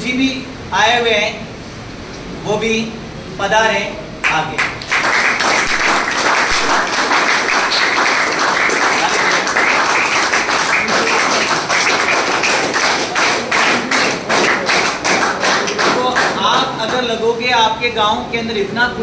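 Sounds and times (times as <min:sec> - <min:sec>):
students applauding: 0:04.2 - 0:17.1.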